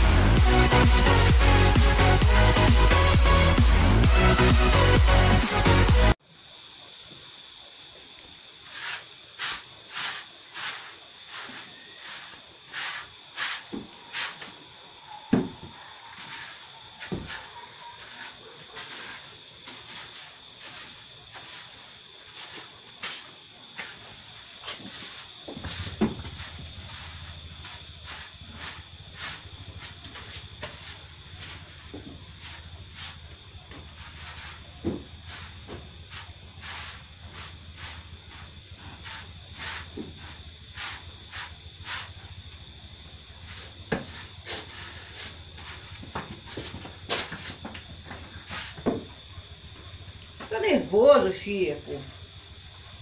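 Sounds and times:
crickets chirring: 0.0s - 53.0s
steady high hiss: 5.6s - 15.0s, 16.3s - 49.0s
heavy thump: 25.5s - 26.4s, 34.8s - 35.1s, 48.8s - 49.1s.

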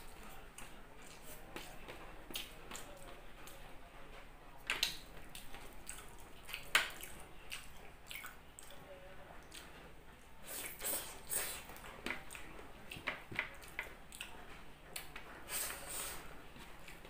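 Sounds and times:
wet chewing and mouth clicks: 4.8s - 8.8s.

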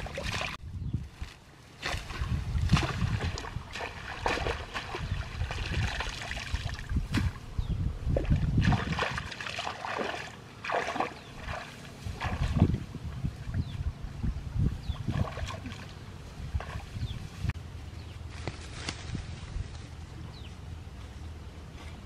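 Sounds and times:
water and mud splashing: 0.0s - 7.4s, 8.0s - 13.8s, 14.9s - 17.5s.

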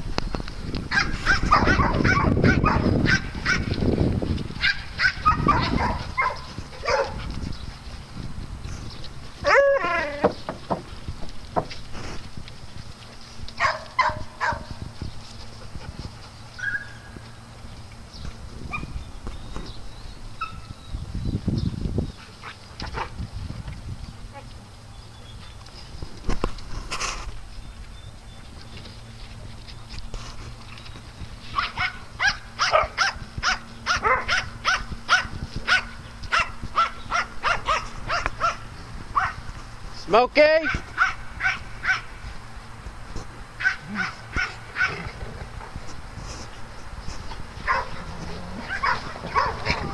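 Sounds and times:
scuffling footsteps: 0.0s - 49.9s
dogs barking: 0.8s - 7.5s, 9.4s - 10.8s, 13.5s - 14.8s, 31.4s - 39.6s, 40.6s - 42.3s, 43.5s - 45.8s, 46.7s - 49.9s.

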